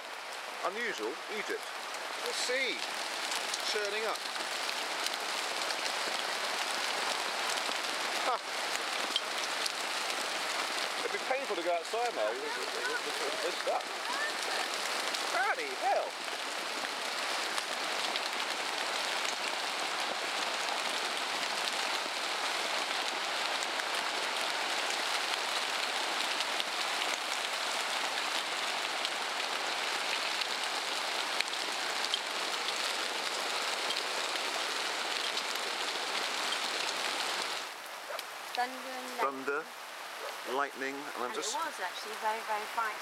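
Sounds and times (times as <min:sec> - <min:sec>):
hail and rain pelting: 0:00.0 - 0:43.0.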